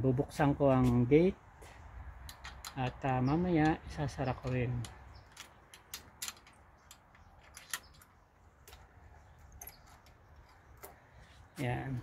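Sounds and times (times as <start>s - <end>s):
gate latch clicks and knocks: 2.2s - 8.8s.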